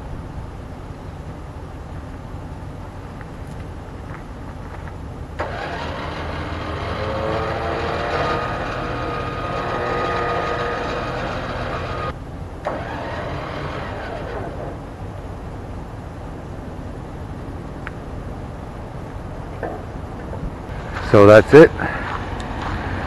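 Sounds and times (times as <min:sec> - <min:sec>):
electric winch motor whine: 0:05.4 - 0:15.4.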